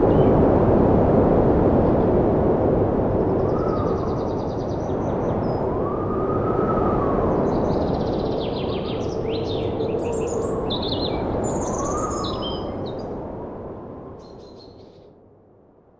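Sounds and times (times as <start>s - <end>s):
steady rushing noise: 0.0s - 14.2s
birds chirping and trilling: 7.3s - 13.1s.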